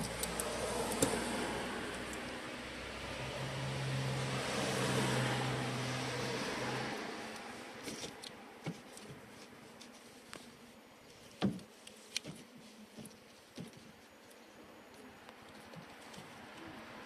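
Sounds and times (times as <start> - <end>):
clicks of wires being handled: 0.0 - 1.2, 7.3 - 16.7.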